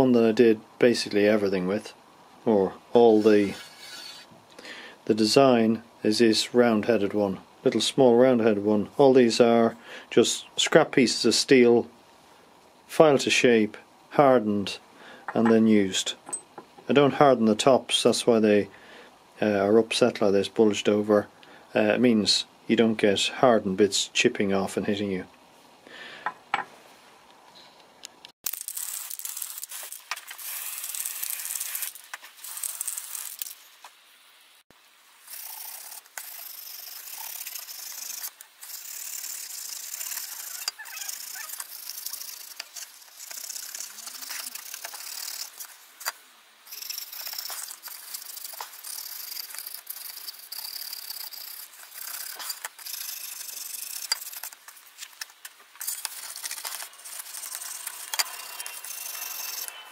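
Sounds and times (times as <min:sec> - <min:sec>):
wire wool scrubbing metal sheet: 0:03.0 - 0:04.3, 0:35.2 - 0:46.1, 0:46.7 - 0:59.8.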